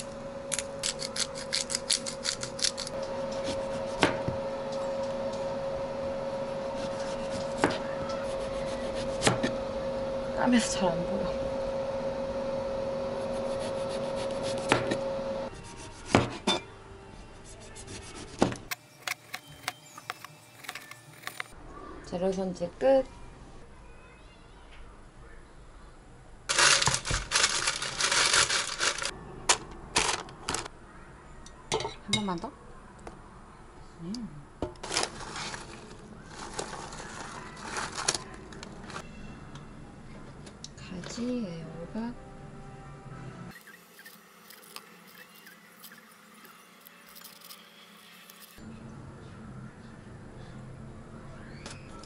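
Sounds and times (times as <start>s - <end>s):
steady hum with held tone: 0.0s - 34.8s, 35.8s - 52.0s
knife chopping on cutting board: 16.0s - 16.4s
plastic bag crinkling: 26.5s - 29.1s, 30.0s - 30.7s, 34.8s - 39.0s.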